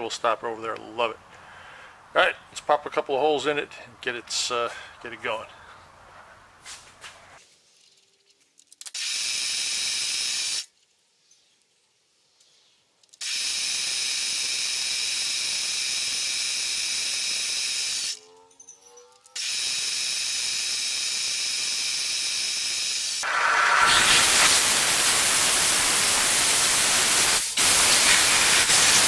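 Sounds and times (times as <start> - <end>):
steady hiss: 23.1 - 29.0.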